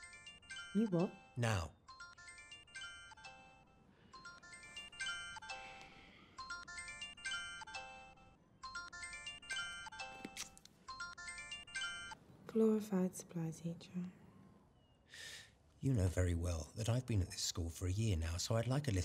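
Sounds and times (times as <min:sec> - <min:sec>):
ringtone melody from phone speaker: 0:00.0 - 0:12.2.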